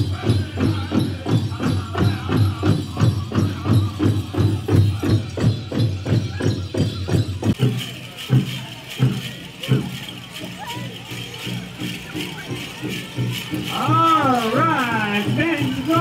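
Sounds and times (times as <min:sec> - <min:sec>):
people singing: 0:00.0 - 0:06.9
drum beating steadily: 0:00.0 - 0:16.0
jingling of dancers' regalia: 0:00.0 - 0:16.0.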